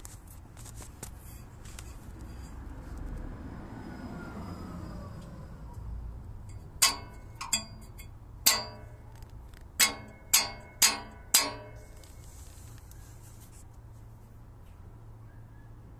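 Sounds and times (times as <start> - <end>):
metal heat shield clanging: 6.5 - 12.0.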